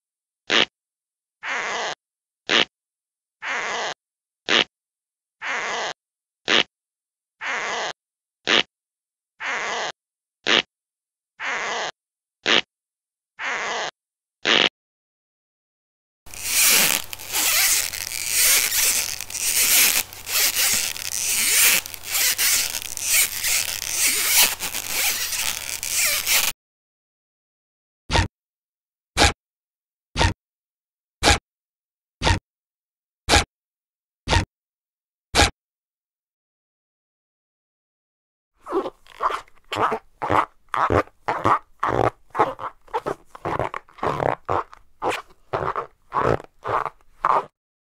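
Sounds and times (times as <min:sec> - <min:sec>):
squeaky rasping rub: 0:05.4 - 0:06.7, 0:07.4 - 0:08.7, 0:09.4 - 0:10.7, 0:16.3 - 0:26.5, 0:38.6 - 0:47.5.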